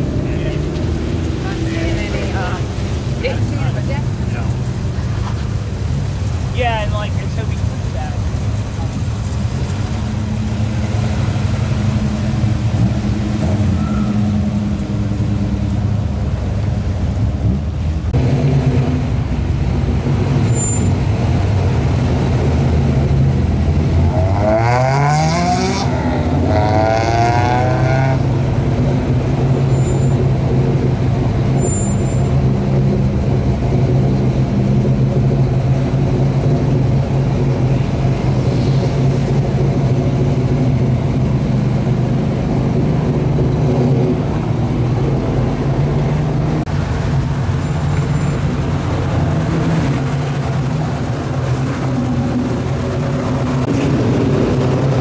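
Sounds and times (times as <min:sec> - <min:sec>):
car engines running at low speed: 0:00.0 - 0:55.0
pickup engine revving: 0:00.0 - 0:55.0.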